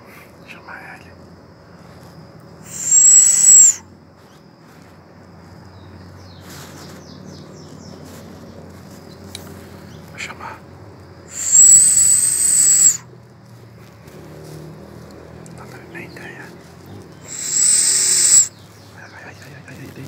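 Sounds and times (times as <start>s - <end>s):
low forest background: 0.0s - 20.0s
monkey high thin whistle: 2.7s - 3.8s, 11.3s - 13.1s, 17.3s - 18.6s.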